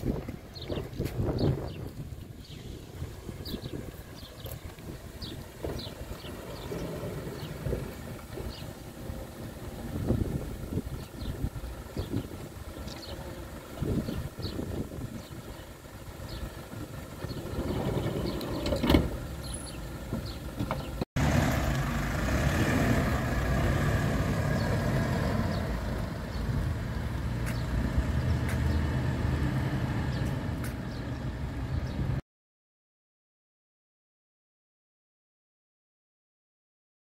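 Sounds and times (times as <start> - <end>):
wind noise: 0.0 - 13.0, 13.7 - 19.3
vehicle engines running: 0.0 - 32.2.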